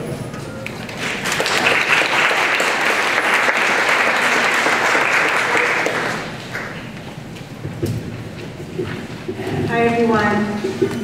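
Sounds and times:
audience applauding: 0.6 - 6.9.

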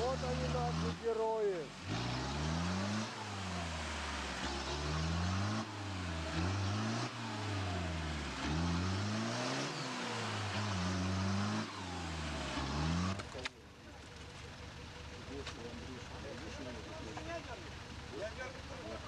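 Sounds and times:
engine revving: 0.0 - 14.4.

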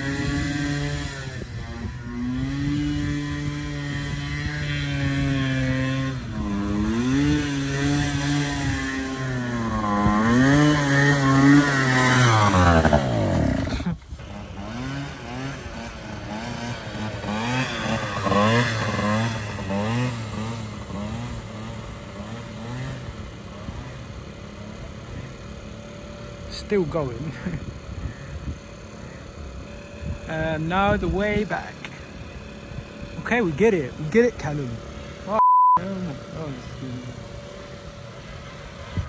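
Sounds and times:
moped engine revving: 0.0 - 39.0.

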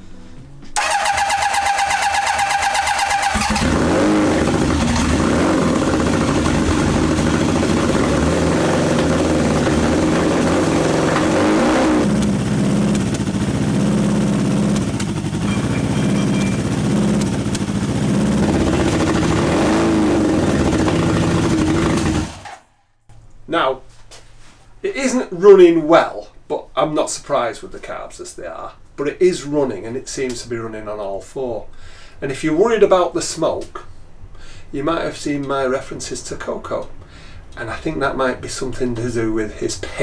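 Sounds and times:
motorcycle engine revving: 0.8 - 22.7.

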